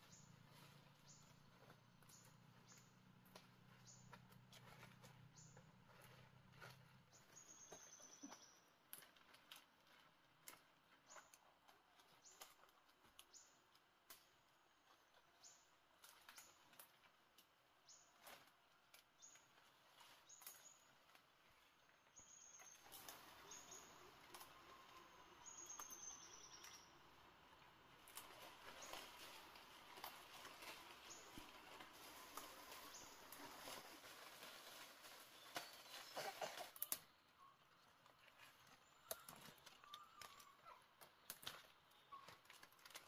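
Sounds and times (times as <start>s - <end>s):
leafy plants rustling and snapping: 8.2s - 37.2s, 38.0s - 43.0s.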